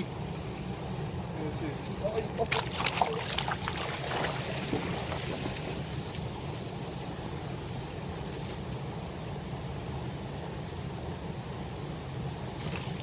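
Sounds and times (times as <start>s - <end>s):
stream flowing: 0.0s - 8.1s
hands splashing in water: 2.5s - 5.3s.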